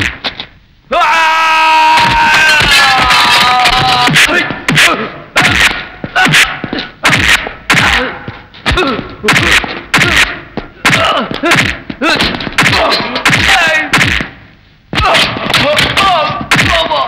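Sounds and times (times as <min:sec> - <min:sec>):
punch and kick whacks: 0:03.7 - 0:14.4, 0:15.0 - 0:17.0
men grunting: 0:07.7 - 0:13.9.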